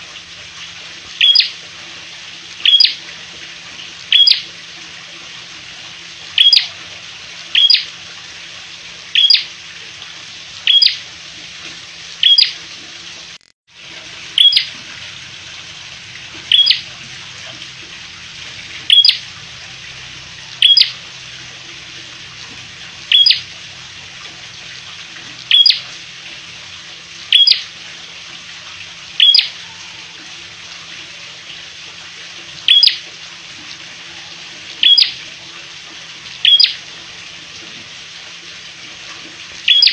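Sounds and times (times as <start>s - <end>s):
bird chip note calls: 39.7s - 39.9s.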